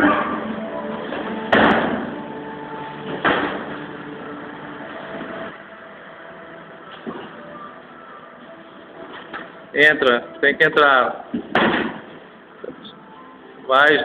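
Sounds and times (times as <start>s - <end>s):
kickboxing blows thudding: 1.5s - 2.2s, 11.3s - 12.2s.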